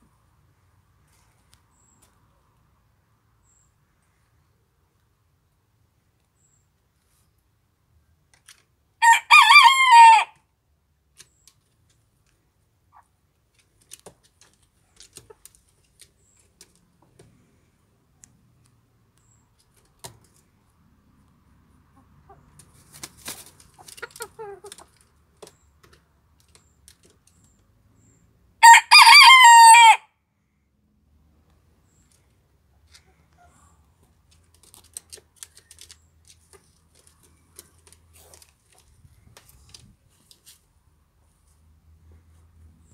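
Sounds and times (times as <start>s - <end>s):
quieter rooster calls: 9.0s - 10.3s, 28.6s - 30.0s
rooster crowing: 9.0s - 10.4s, 28.6s - 30.1s.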